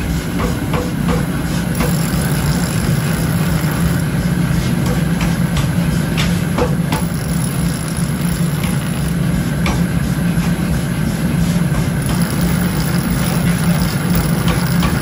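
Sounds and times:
metal grinding with rasping hiss: 0:00.0 - 0:15.0
grinding wheel droning: 0:01.5 - 0:05.3, 0:06.6 - 0:10.8, 0:11.8 - 0:15.0.

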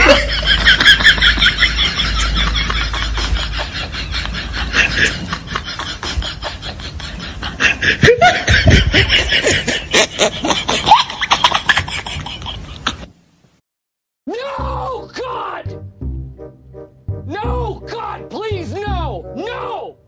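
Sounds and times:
people laughing: 0:00.0 - 0:13.1.

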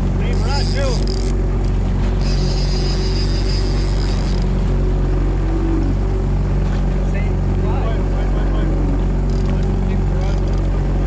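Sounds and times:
high whir: 0:00.0 - 0:07.3
boat engine humming: 0:00.0 - 0:11.0.

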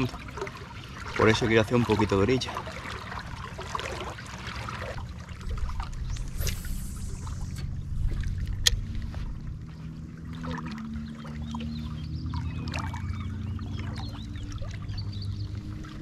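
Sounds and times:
low steady rumble: 0:00.0 - 0:16.0
water lapping: 0:00.0 - 0:16.0
brief hiss: 0:06.1 - 0:07.7.

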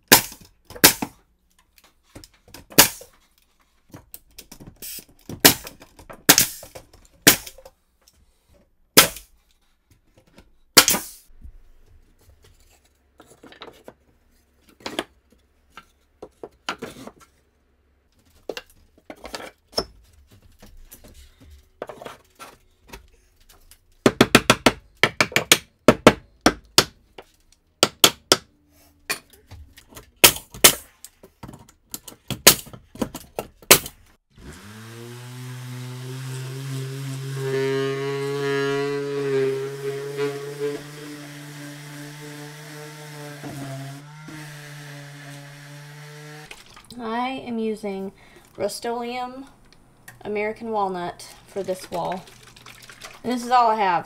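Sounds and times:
nail gun shots: 0:00.1 - 0:01.1, 0:02.8 - 0:03.0, 0:06.3 - 0:06.6, 0:10.8 - 0:11.2.

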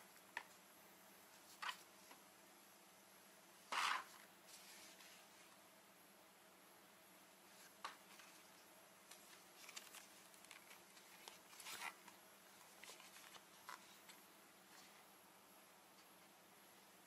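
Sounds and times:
plastic scrape: 0:03.7 - 0:05.0
plastic goggle clicks and rustles: 0:07.6 - 0:14.2.

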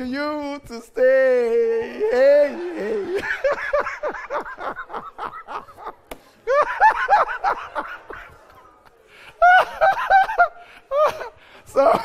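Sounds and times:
man laughing heartily: 0:01.9 - 0:08.6, 0:09.3 - 0:11.4.

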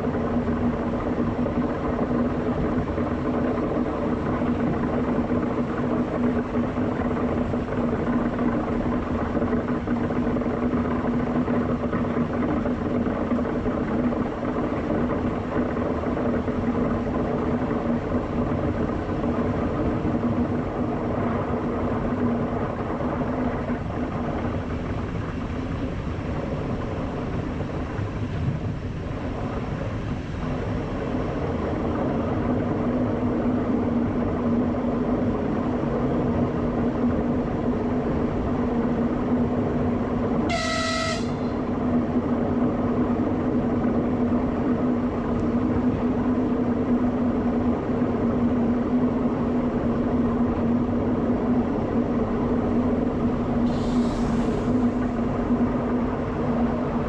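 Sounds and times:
train running rumble: 0:00.0 - 0:57.0
short train horn toot: 0:40.5 - 0:41.7.

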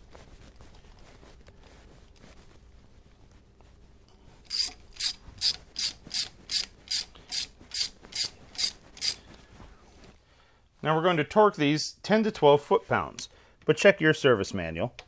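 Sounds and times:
ratchet wrench clicking: 0:04.5 - 0:09.2.

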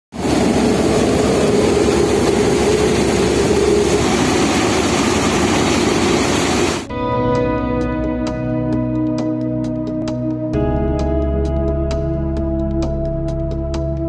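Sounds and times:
threshing machine running: 0:00.2 - 0:06.9.

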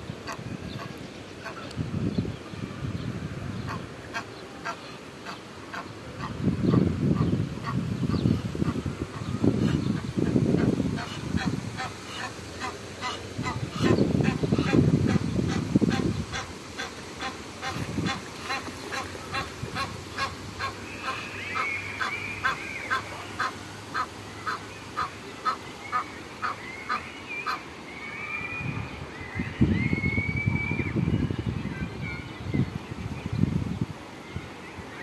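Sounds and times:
goslings peeping: 0:07.2 - 0:27.6.

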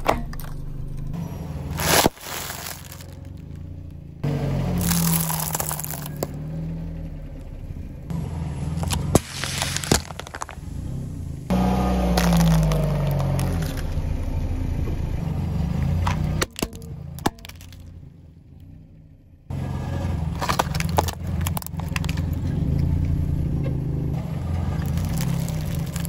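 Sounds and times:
car engine hum: 0:00.0 - 0:26.0
pine cones cracking: 0:01.6 - 0:03.7, 0:04.7 - 0:06.4, 0:08.7 - 0:11.0, 0:11.6 - 0:14.0, 0:16.4 - 0:18.0, 0:20.3 - 0:22.4, 0:24.6 - 0:26.0
foil egg crunching: 0:01.8 - 0:03.4, 0:04.8 - 0:06.3, 0:08.8 - 0:10.6, 0:12.2 - 0:13.8, 0:24.8 - 0:26.0
plastic toy breaking: 0:01.8 - 0:03.4, 0:04.8 - 0:06.4, 0:08.8 - 0:10.6, 0:12.1 - 0:13.9, 0:16.4 - 0:18.0, 0:20.4 - 0:22.2, 0:24.8 - 0:26.0.

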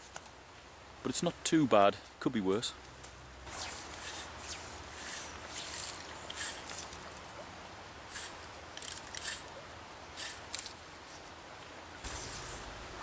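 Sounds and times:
fly line swishing: 0:03.4 - 0:07.2, 0:08.1 - 0:09.5, 0:10.2 - 0:10.8, 0:12.0 - 0:12.8.

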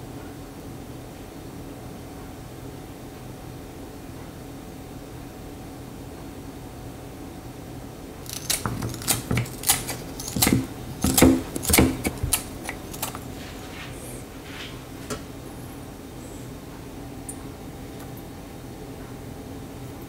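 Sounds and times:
scissors snipping fish: 0:08.2 - 0:13.4.

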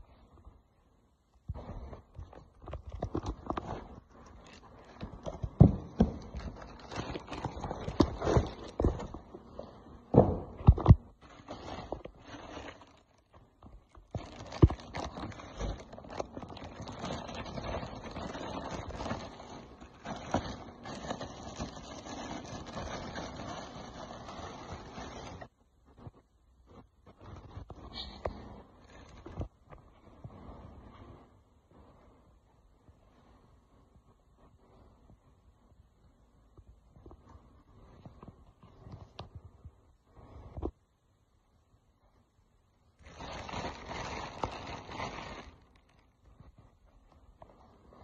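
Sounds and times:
plastic wrap rustling: 0:01.6 - 0:25.6, 0:28.8 - 0:29.6, 0:43.0 - 0:46.6
hollow knocks and thumps: 0:05.0 - 0:11.1.

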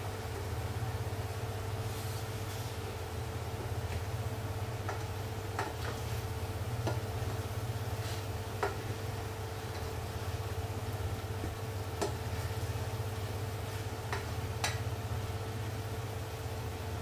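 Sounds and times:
steady low hum: 0:00.0 - 0:17.0
spatula knocking on metal pot: 0:12.0 - 0:12.2, 0:14.1 - 0:14.8.

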